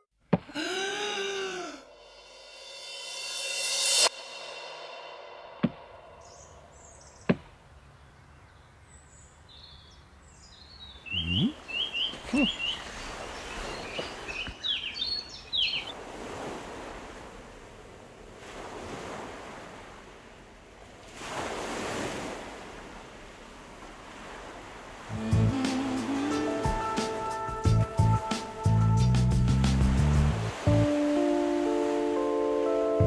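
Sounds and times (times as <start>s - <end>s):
birds chirping: 6.2s - 16.0s
ocean waves washing: 11.3s - 28.8s, 29.8s - 33.0s.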